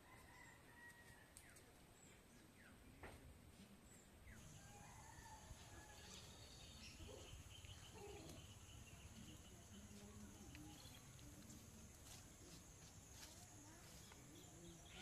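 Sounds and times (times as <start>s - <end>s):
insects humming: 4.4s - 15.0s.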